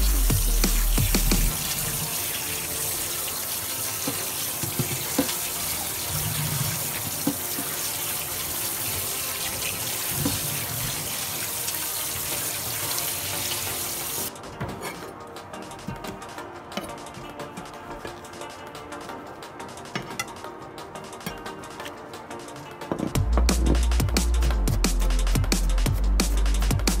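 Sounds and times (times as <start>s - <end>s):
tap water running into sink: 0.3s - 14.3s.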